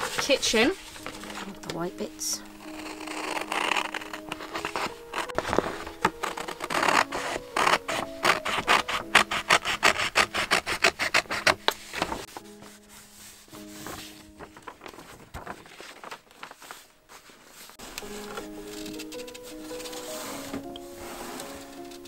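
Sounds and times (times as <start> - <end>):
scissors cutting paper: 0.0 - 1.8, 2.4 - 12.3, 17.8 - 22.0
faint background music: 0.0 - 22.0.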